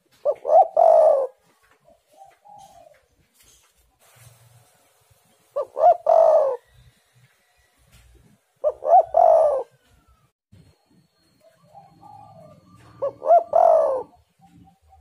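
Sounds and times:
dove cooing: 0.0 - 3.2, 5.6 - 6.8, 8.6 - 10.3, 11.4 - 15.0.

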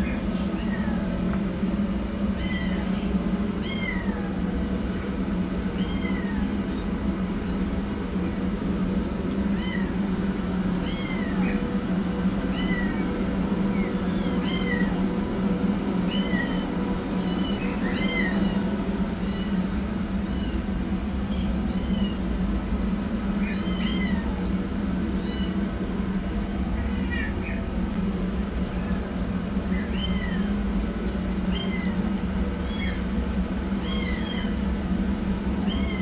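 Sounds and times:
steady low hum: 0.0 - 36.0
kittens mewing: 2.3 - 4.4, 13.7 - 15.5, 35.5 - 36.0.

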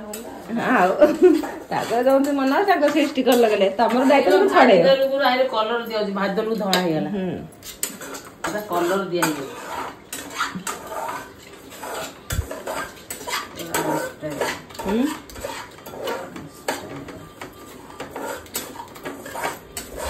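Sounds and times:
dishes and utensils clattering: 0.0 - 20.0.

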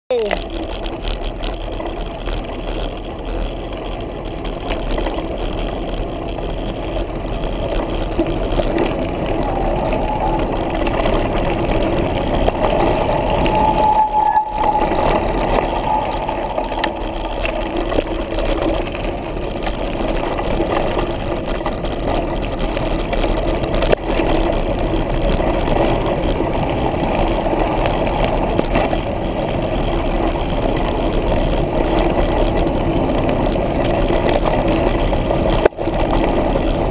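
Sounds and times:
wind on microphone: 8.2 - 19.2.

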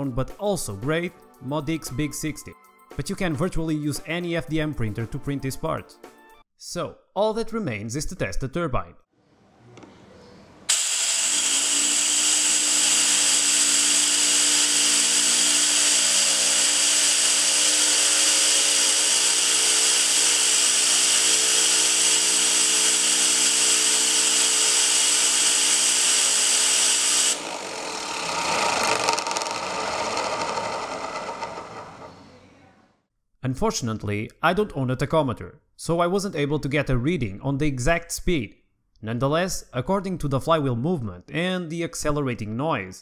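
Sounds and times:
turbine rotor humming: 10.7 - 32.5.

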